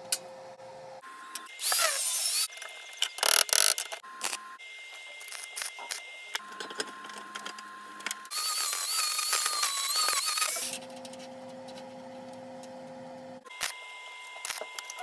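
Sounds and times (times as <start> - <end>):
angle grinder grinding steel: 8.2 - 11.1
low machine hum: 10.6 - 13.5.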